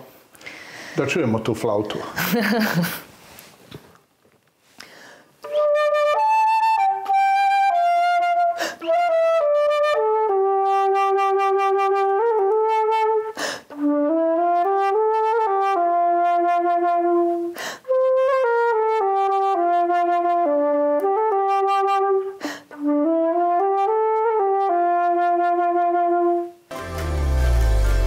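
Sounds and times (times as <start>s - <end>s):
player breathing in: 0.4s - 1.0s, 4.7s - 5.4s, 13.4s - 13.7s, 17.5s - 17.9s
solo flute melody: 5.4s - 28.0s.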